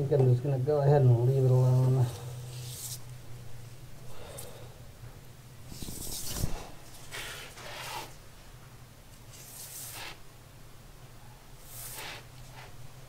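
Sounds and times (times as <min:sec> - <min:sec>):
steady low hum: 0:00.0 - 0:13.0
brush scraping concrete: 0:07.1 - 0:08.2, 0:11.6 - 0:12.8.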